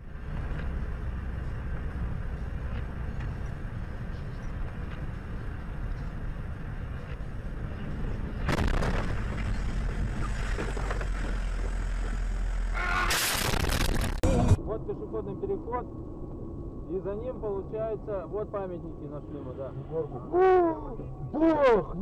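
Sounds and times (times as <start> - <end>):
engine and tyre rumble: 0.0 - 22.0.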